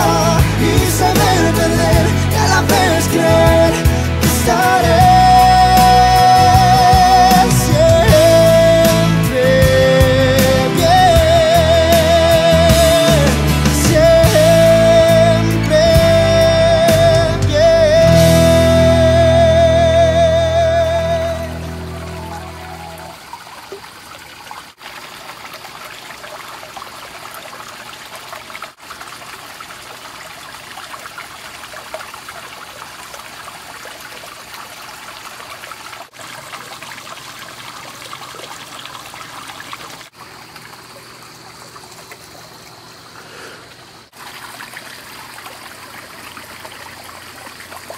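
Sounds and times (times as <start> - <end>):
water trickling into a pond: 20.4 - 47.9.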